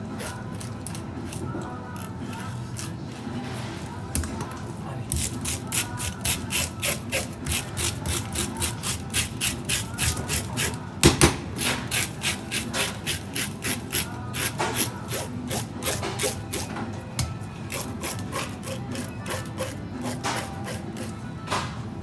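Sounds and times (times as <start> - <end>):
fish scaler rasping scales: 17.7 - 21.2.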